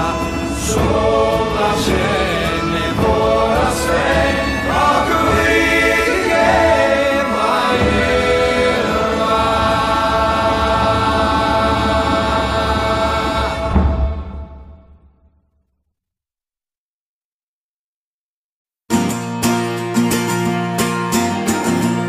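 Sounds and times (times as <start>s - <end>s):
choir singing: 0.0s - 15.1s.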